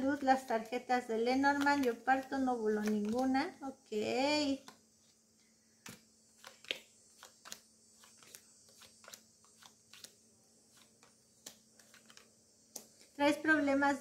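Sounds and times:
cards clicking on wooden desk: 1.5s - 3.4s, 5.8s - 13.2s.

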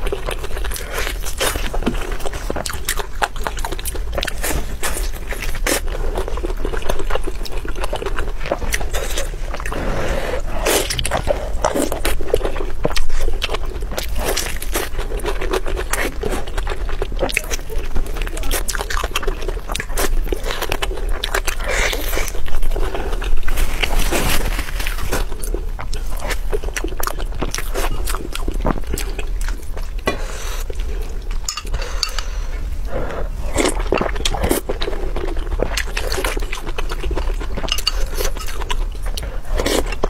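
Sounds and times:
person chewing and biting food: 0.0s - 40.0s
chopsticks clinking on glass bowl: 31.5s - 32.2s.

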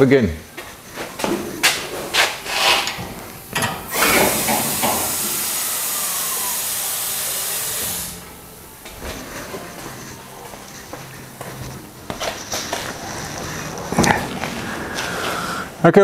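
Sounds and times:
footsteps on concrete: 0.5s - 2.4s, 8.8s - 15.4s
compressed air hissing: 0.5s - 8.4s, 9.0s - 15.9s.

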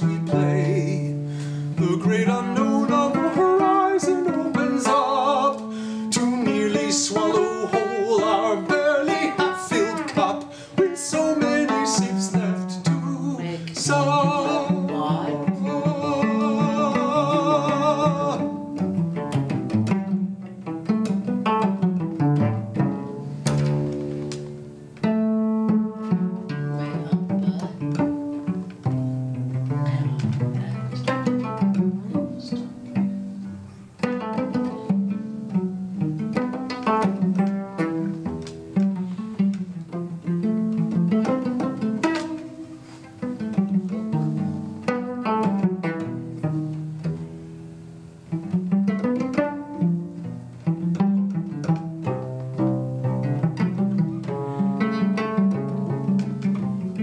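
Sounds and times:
cello plucked notes: 0.0s - 57.0s.

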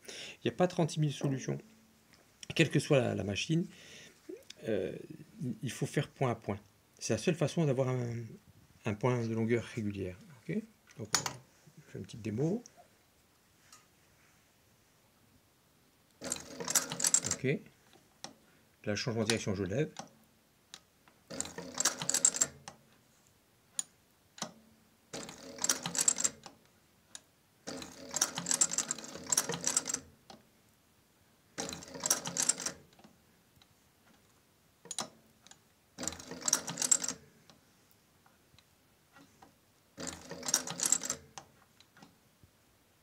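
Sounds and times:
sewing machine stitching leather: 16.2s - 17.4s, 21.3s - 22.8s, 24.4s - 26.6s, 27.6s - 30.1s, 31.6s - 33.1s, 36.0s - 37.2s, 39.2s - 42.1s.

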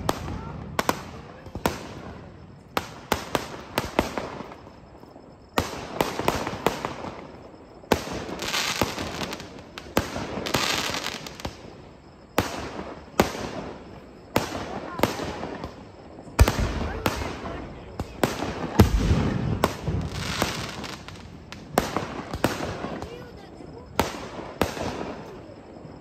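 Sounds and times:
fireworks bangs: 0.0s - 26.0s
fireworks crackling: 0.0s - 26.0s.

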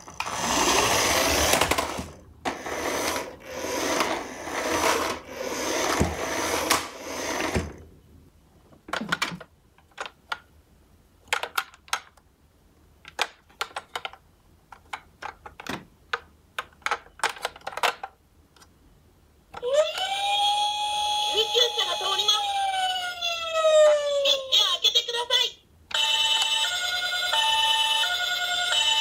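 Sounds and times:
plastic toy wheels rolling on floor: 0.0s - 7.8s
plastic toy clicks and knocks: 11.2s - 12.2s, 13.0s - 18.7s.

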